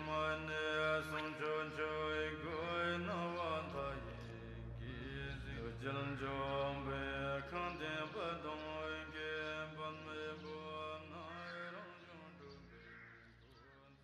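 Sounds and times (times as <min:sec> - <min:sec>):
low drone: 0:00.0 - 0:11.0
chant-like singing: 0:00.0 - 0:14.0.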